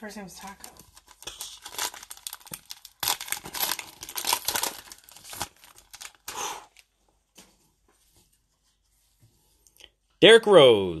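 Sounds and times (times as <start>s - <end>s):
wrapper tearing and crinkling: 0.4s - 6.8s.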